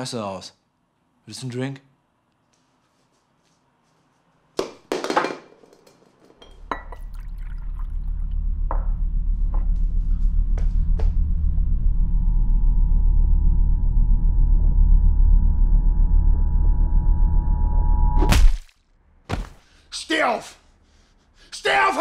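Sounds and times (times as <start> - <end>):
drink pouring into a glass: 6.7 - 8.4
low rumbling drone: 7.5 - 18.2.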